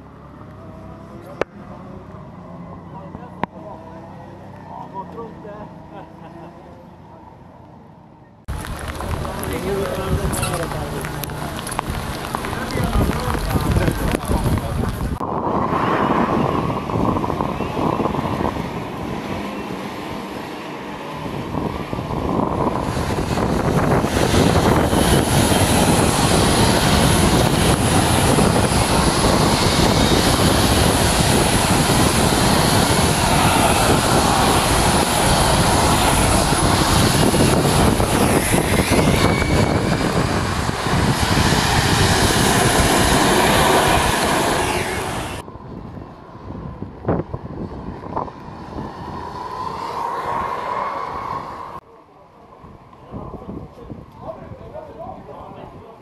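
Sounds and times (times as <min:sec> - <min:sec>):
wet tyre spray: 0:08.5 - 0:17.1, 0:17.8 - 0:45.4
racing karts passing: 0:47.0 - 0:51.8.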